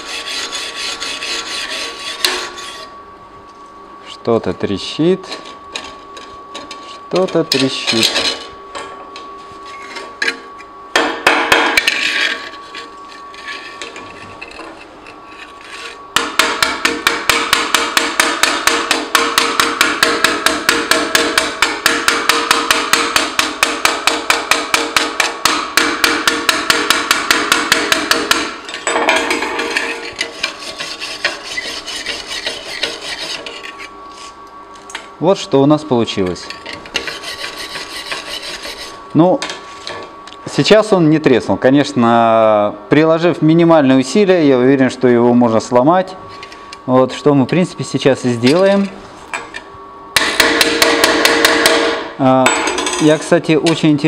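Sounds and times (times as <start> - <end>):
scraping and scrubbing: 0.0 - 2.9, 11.8 - 16.0, 29.1 - 34.4, 36.8 - 39.0.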